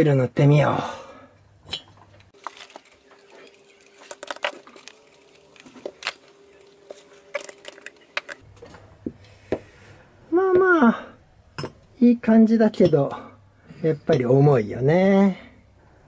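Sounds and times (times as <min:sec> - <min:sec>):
light metallic clinks and taps: 0:02.4 - 0:08.4.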